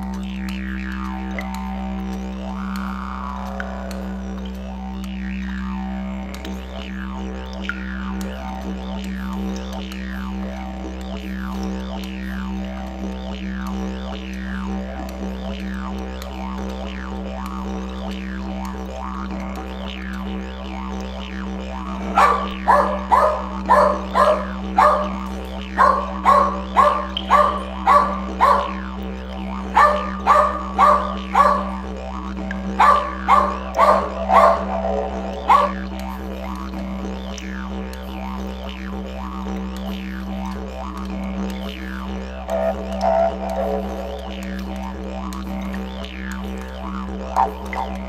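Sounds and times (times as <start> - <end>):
small dog barking: 22.0 - 28.8, 29.7 - 31.9, 32.8 - 35.8, 42.5 - 44.3, 47.4 - 48.0.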